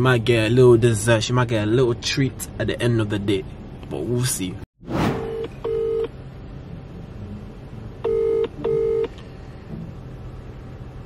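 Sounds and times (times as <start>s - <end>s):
telephone ringback tone: 5.3s - 6.1s, 8.0s - 9.1s.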